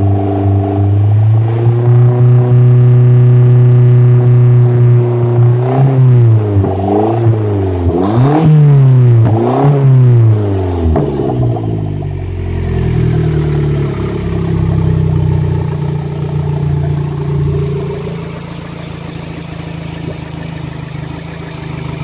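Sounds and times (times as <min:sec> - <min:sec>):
car engine idling: 0:10.2 - 0:22.0.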